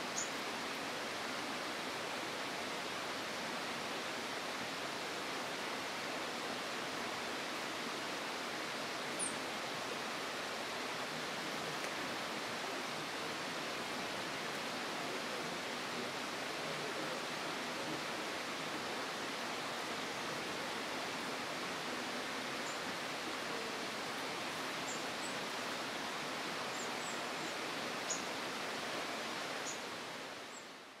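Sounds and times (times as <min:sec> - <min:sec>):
steady rushing hiss: 0:00.0 - 0:31.0
small birds chirping: 0:00.1 - 0:00.4, 0:26.7 - 0:28.4, 0:29.6 - 0:29.9.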